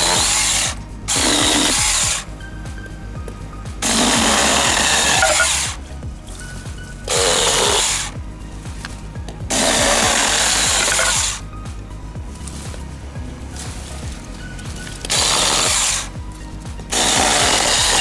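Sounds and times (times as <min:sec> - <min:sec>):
chainsaw cutting bamboo: 0:00.0 - 0:02.3, 0:03.8 - 0:05.9, 0:07.1 - 0:08.2, 0:09.5 - 0:11.4, 0:14.8 - 0:16.2, 0:16.9 - 0:18.0.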